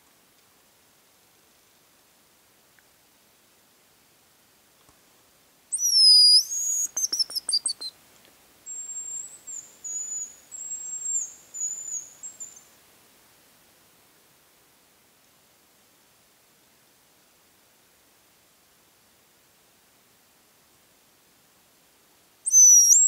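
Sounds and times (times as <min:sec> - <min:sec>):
high bird whistles and trill: 0:05.7 - 0:07.9, 0:08.7 - 0:12.6, 0:22.5 - 0:23.0.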